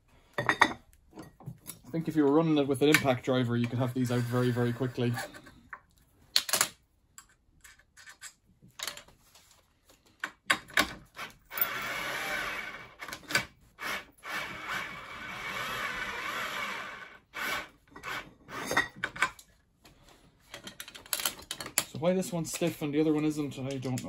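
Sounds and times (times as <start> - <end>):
cordless drill whining: 4.0 - 5.3, 11.2 - 18.7
tool handling clicks and knocks: 10.2 - 11.7, 18.7 - 19.6, 20.4 - 24.0.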